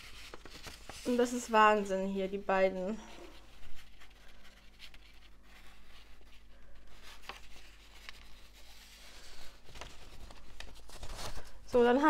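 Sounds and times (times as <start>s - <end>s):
paper rustling: 0.0s - 2.4s, 3.0s - 12.0s
light paper crackles: 0.0s - 12.0s.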